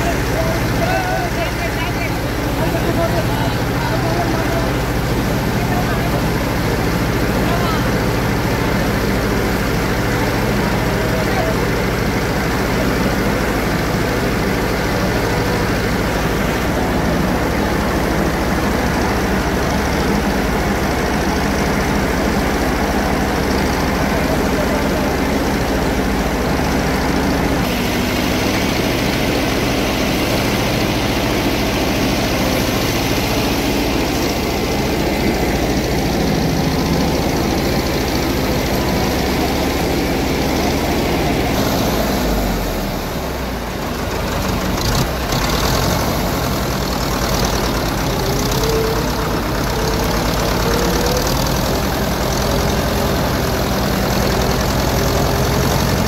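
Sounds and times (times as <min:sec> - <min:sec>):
tractor engine running: 0:00.0 - 0:56.0
water churning and splashing: 0:00.0 - 0:56.0.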